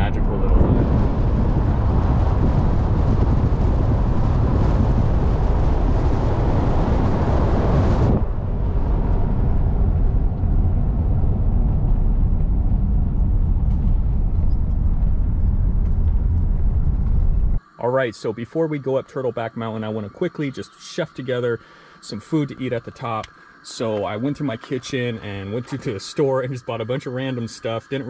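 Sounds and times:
van engine and road rumble: 0.0 - 17.6
wind hissing through open window: 0.0 - 28.0.

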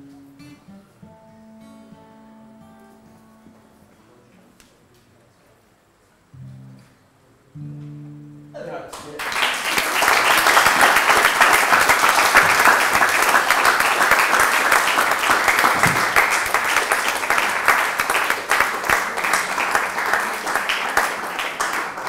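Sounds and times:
audience clapping: 8.9 - 22.0.

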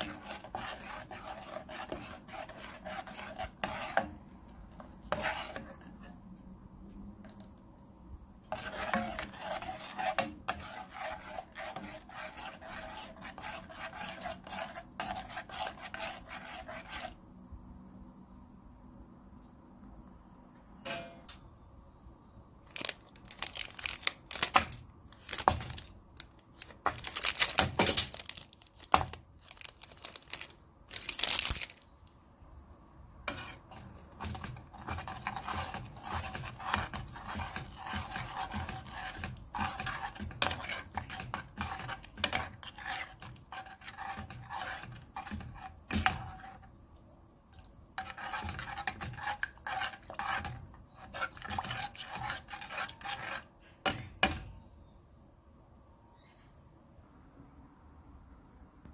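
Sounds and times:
utensil scraping a metal saucepan: 0.0 - 4.2, 4.8 - 6.3, 8.4 - 17.2, 33.3 - 46.7, 47.6 - 54.4.

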